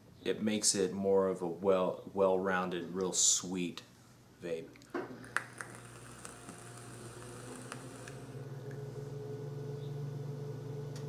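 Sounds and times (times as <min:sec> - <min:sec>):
coil crackling: 0:04.6 - 0:09.7
vapor blown out: 0:05.2 - 0:08.4
vape draw: 0:05.2 - 0:08.9
low hum: 0:05.2 - 0:11.0.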